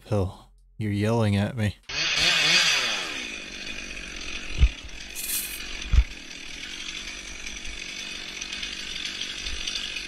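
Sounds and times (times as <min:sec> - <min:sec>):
rough burning noise: 0:03.8 - 0:07.6
short hiss: 0:05.2 - 0:05.6.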